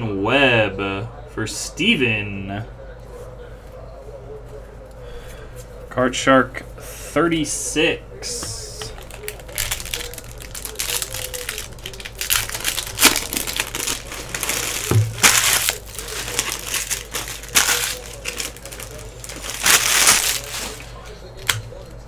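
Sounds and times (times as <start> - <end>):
wrappers crinkling and tearing: 8.5 - 21.8.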